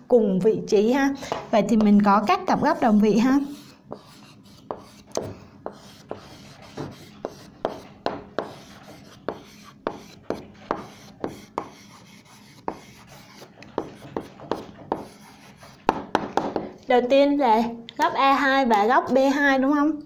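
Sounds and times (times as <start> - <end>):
pen tapping and scratching: 2.6 - 16.7.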